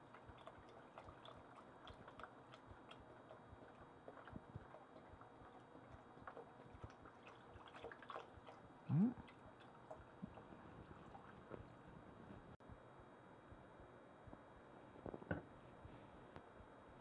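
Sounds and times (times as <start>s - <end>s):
liquid splashing and gurgling: 0.0s - 11.8s.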